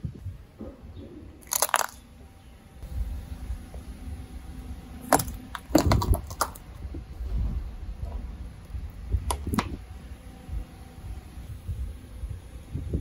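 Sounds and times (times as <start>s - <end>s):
low tyre rumble: 0.0s - 13.0s
figurine cracking and shattering: 1.4s - 2.0s, 5.1s - 6.6s.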